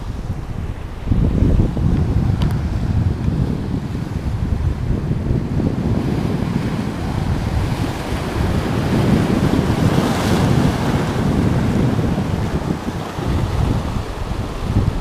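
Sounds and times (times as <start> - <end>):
wind buffeting microphone: 0.0 - 15.0
surf breaking over rocks: 5.1 - 15.0.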